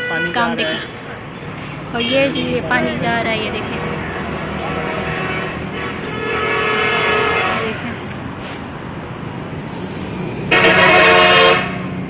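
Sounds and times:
road traffic rumbling: 0.0 - 12.0
vehicle horn blasts: 4.7 - 7.9, 10.5 - 11.8.

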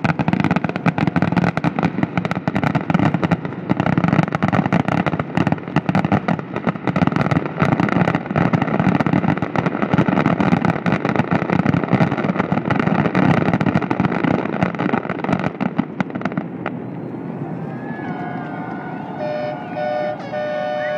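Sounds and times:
fireworks bangs and crackling: 0.0 - 20.9
constant rumble: 14.4 - 20.9.

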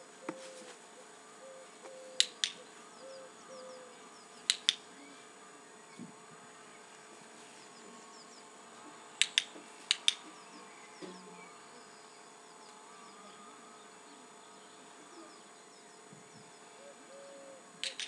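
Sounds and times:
faint high chirping: 1.4 - 8.6
training clicker snapping: 2.2 - 2.6, 4.4 - 4.8, 9.2 - 10.3, 17.8 - 18.0.

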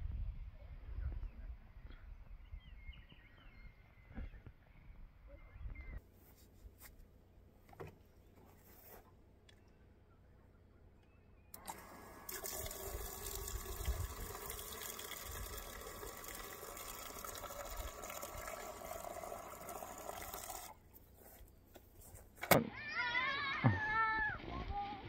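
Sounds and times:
water running into plastic jug: 11.6 - 20.8.

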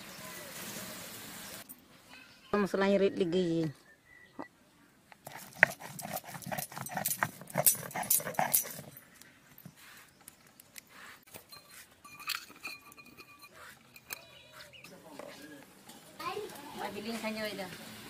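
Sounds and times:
stone roller grinding spices: 5.2 - 9.0, 10.9 - 15.4.

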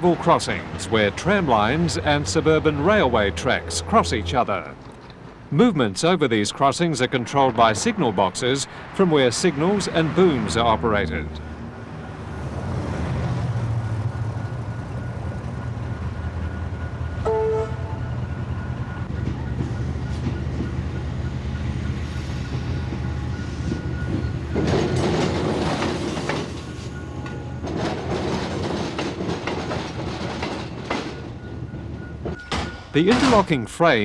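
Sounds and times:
electric train hum: 9.6 - 33.4
train horn note: 17.2 - 18.2
train wheels clattering: 21.8 - 33.6.

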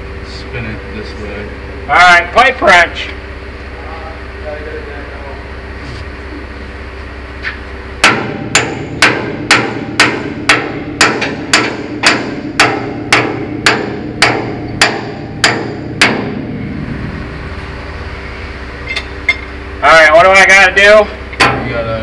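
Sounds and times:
hammer striking steel: 8.0 - 16.8, 18.8 - 19.5, 21.4 - 21.8.

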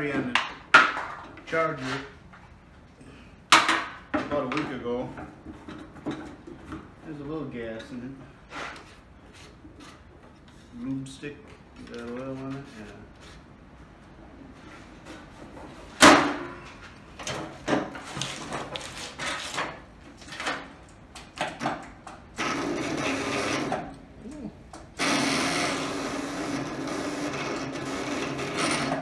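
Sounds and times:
man talking: 7.0 - 8.2, 10.7 - 13.1
electric starter cranking engine: 22.4 - 23.9, 25.0 - 29.0.

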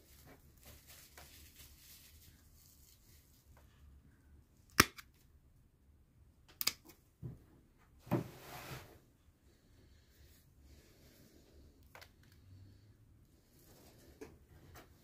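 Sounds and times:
crunching rustle of twigs: 0.0 - 3.4.

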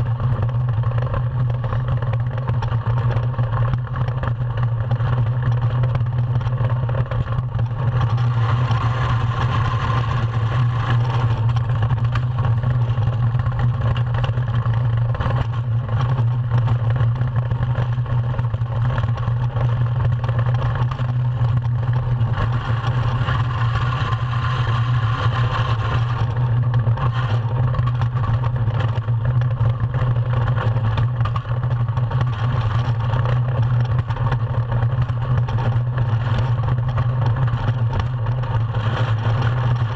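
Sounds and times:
runners rumbling on ice: 0.0 - 39.9
rushing wind: 7.9 - 13.3.

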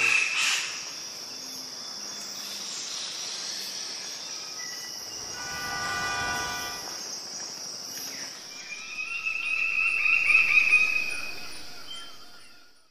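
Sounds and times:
insect chirring: 4.6 - 12.4
wavering higher tone: 5.0 - 7.2.

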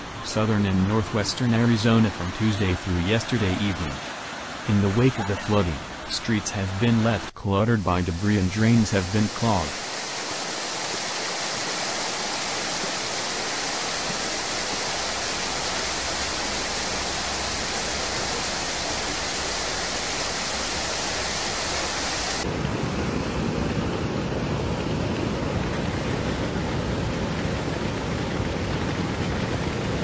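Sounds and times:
flood water rushing: 0.0 - 22.5.

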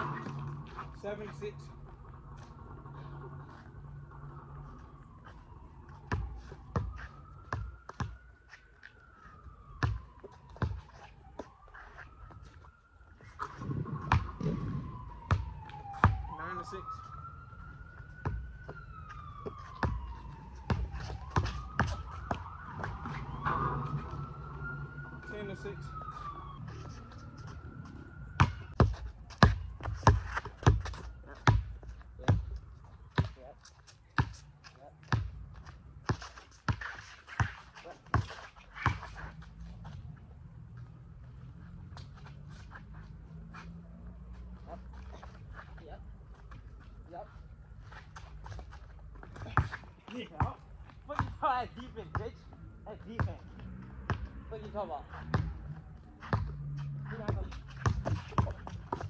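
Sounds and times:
faint siren: 0.0 - 59.0
basketball bouncing on hard court: 28.4 - 31.7, 57.3 - 59.0.

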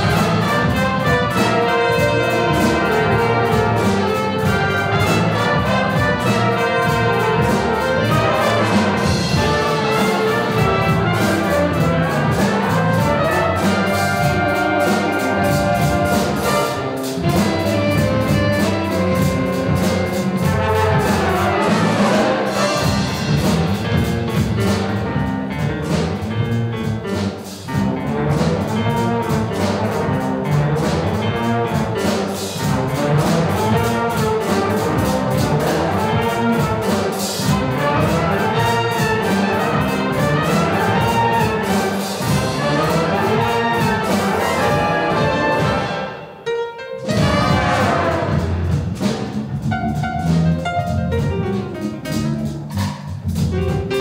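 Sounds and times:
saxophones: 0.0 - 23.3, 33.3 - 48.8
trumpets: 0.0 - 25.1, 27.7 - 49.3
bass guitar: 0.0 - 46.4, 47.0 - 54.0
drum kit: 0.0 - 54.0
piano: 0.0 - 54.0
trombones: 0.0 - 54.0.

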